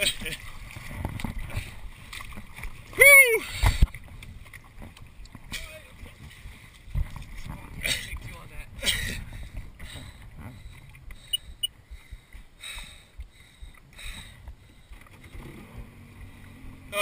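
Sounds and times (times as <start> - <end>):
wind buffeting microphone: 0.0 - 12.5
water slapping against hull: 0.0 - 17.0
low engine hum: 13.4 - 17.0.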